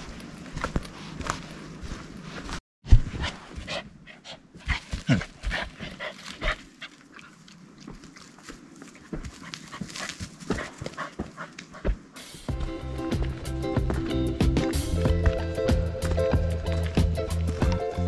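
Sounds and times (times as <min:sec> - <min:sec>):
rustles and steps: 0:00.0 - 0:18.0
dog panting and sniffing: 0:03.1 - 0:07.4, 0:08.8 - 0:12.2.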